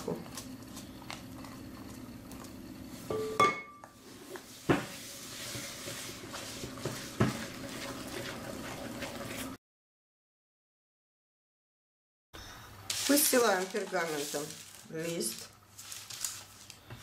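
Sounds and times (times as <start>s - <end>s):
whisk stirring batter: 4.0s - 9.6s.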